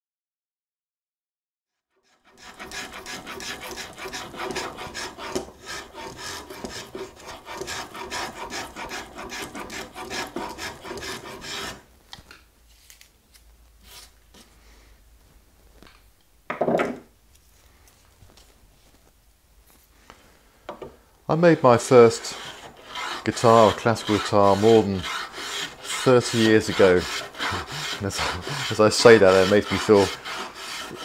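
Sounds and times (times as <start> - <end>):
spokeshave cutting wood: 2.1 - 11.8, 21.6 - 31.0.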